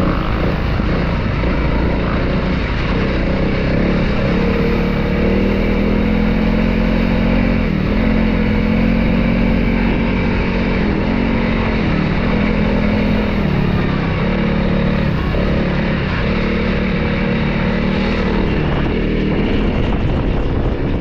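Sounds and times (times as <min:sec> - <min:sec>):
motorcycle engine running: 0:00.0 - 0:21.0
wind and road noise: 0:00.0 - 0:21.0.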